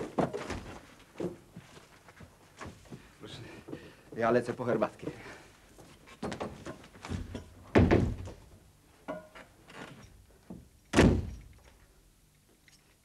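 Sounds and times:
door shutting with heavy thud: 0:07.1 - 0:08.4, 0:10.9 - 0:11.5.

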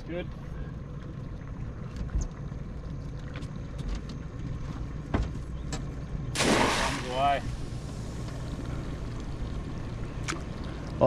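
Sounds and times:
outboard motor idling: 0:00.0 - 0:11.0
sudden loud rush of noise: 0:06.4 - 0:08.2.

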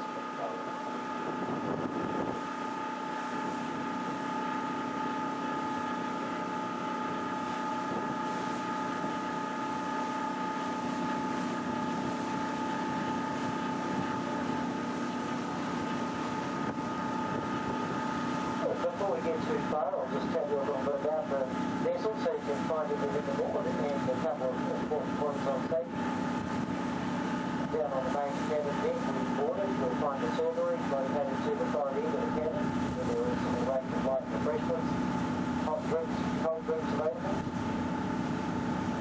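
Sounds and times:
wind hissing over microphone: 0:00.0 - 0:10.1, 0:10.9 - 0:20.2, 0:22.5 - 0:30.7
boat engines humming: 0:00.0 - 0:39.0.

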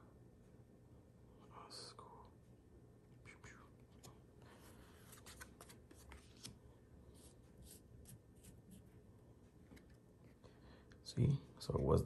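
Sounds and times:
cards sliding and flicking: 0:05.0 - 0:06.6.

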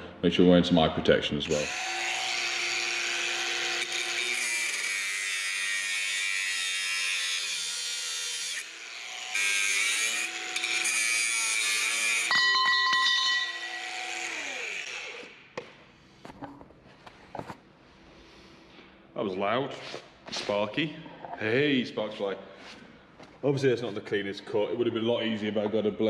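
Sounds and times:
angle grinder cutting steel: 0:01.5 - 0:15.4.

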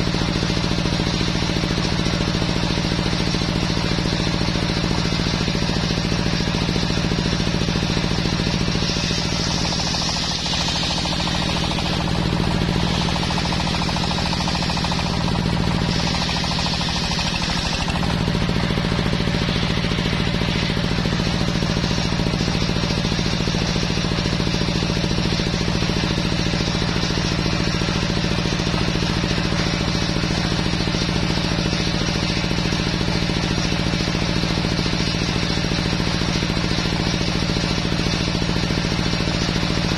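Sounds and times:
table saw motor hum: 0:05.0 - 0:31.6
saw blade ripping through wood: 0:08.0 - 0:20.8.

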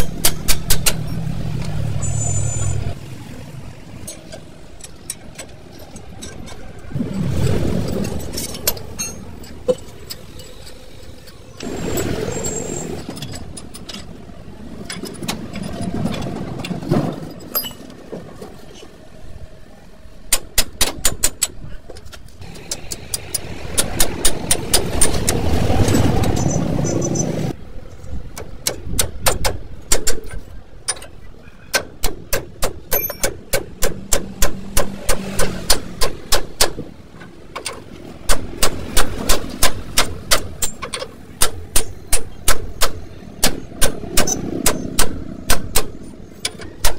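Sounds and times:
hammer striking steel: 0:00.0 - 0:01.1, 0:31.7 - 0:36.9, 0:38.3 - 0:46.9.

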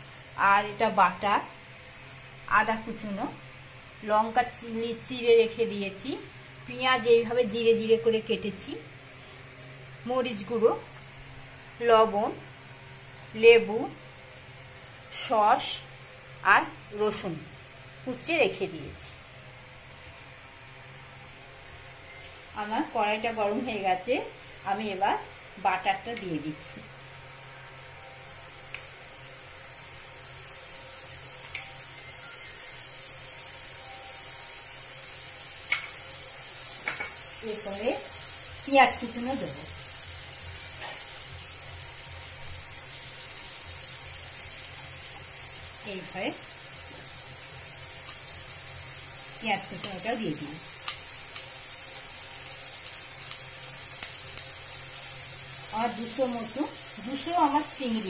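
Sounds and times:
butter sizzling in a pot: 0:23.0 - 0:58.0.

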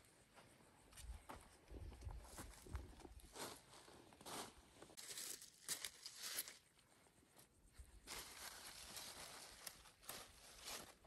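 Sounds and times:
leaves rustling and tearing: 0:05.0 - 0:06.6, 0:08.1 - 0:11.0.

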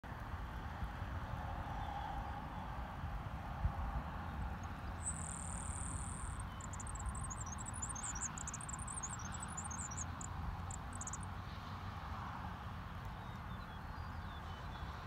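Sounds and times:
high-pitched insect buzzing trill: 0:05.0 - 0:10.1
insect chirps: 0:05.0 - 0:11.3.

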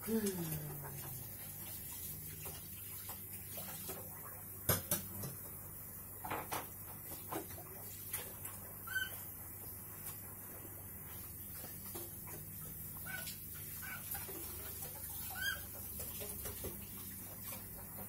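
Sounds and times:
low steady hum: 0:00.0 - 0:18.0
beak tapping on countertop: 0:04.7 - 0:05.4.

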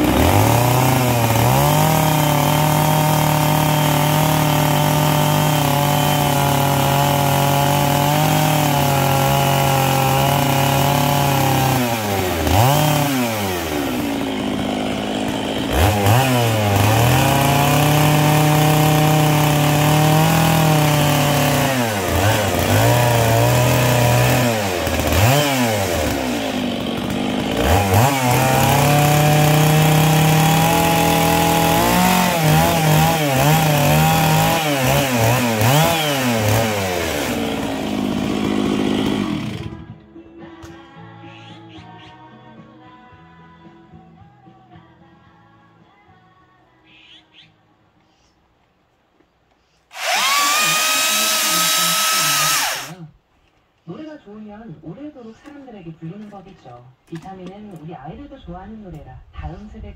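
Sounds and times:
chainsaw revving: 0:00.0 - 0:39.9, 0:49.9 - 0:53.2.

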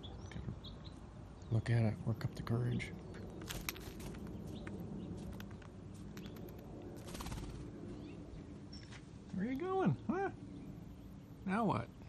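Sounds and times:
bird claws tapping on concrete: 0:03.2 - 0:07.2.

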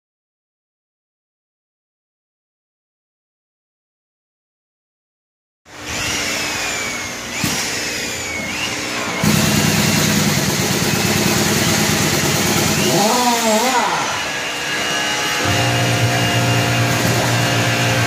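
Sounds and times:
power tool motors whining: 0:05.7 - 0:18.0.

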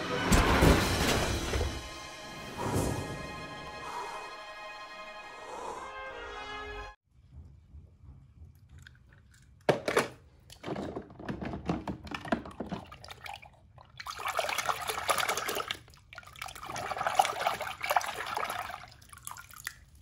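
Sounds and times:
water splashing in a plastic tub: 0:08.8 - 0:20.0.

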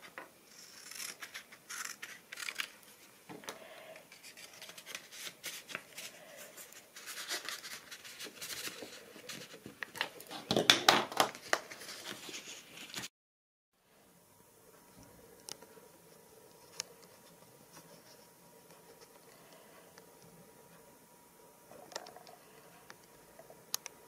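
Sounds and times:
paper rustling: 0:04.1 - 0:13.1
paper crinkles and taps: 0:07.3 - 0:13.1.

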